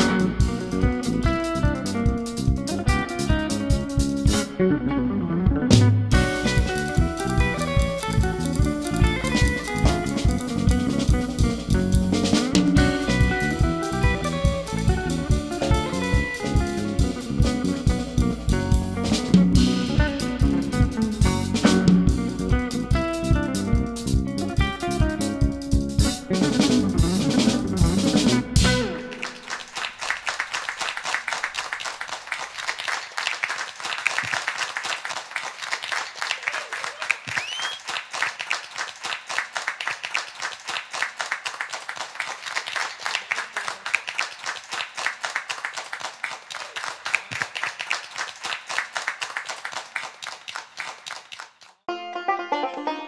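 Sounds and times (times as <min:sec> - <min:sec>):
jazz trio playing: 0:00.0 - 0:29.5
audience applauding: 0:06.1 - 0:21.9, 0:26.4 - 0:51.8.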